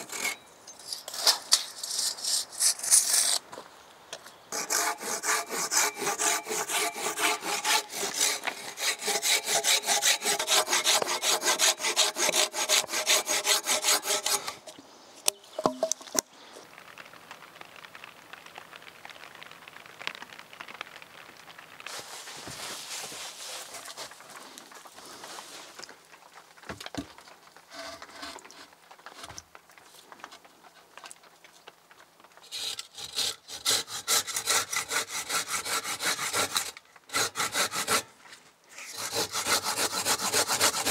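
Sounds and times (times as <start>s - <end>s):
handsaw cutting wood: 4.6s - 14.6s, 32.5s - 38.1s, 38.7s - 40.9s.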